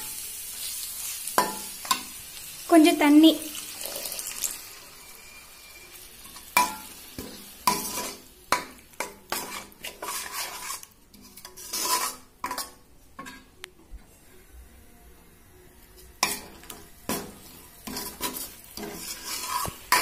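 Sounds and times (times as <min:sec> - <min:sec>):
water hissing in hot pan: 0:00.0 - 0:08.4, 0:17.6 - 0:20.0
spoon scraping metal pan: 0:03.8 - 0:13.5, 0:16.2 - 0:20.0.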